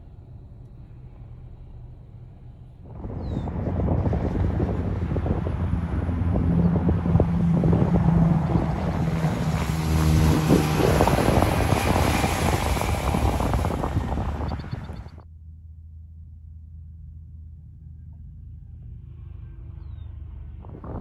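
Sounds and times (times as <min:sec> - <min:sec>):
truck passing on highway: 0:00.0 - 0:15.2.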